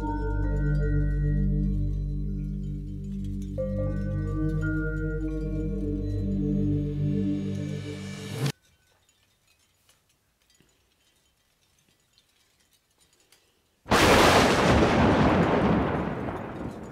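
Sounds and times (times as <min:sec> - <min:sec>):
held musical tone: 0:00.0 - 0:08.8
faint small clicks: 0:08.9 - 0:13.8
loud boom crash: 0:13.9 - 0:16.9.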